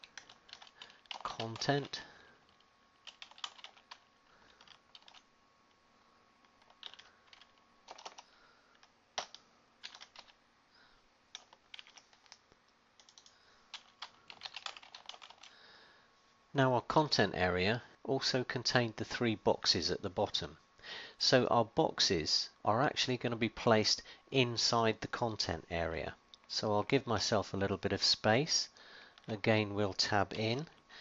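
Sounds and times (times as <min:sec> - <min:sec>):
keyboard keys clicking: 0:03.0 - 0:04.0, 0:04.6 - 0:05.2, 0:06.6 - 0:08.2, 0:09.2 - 0:10.4, 0:11.3 - 0:12.4, 0:13.0 - 0:15.5.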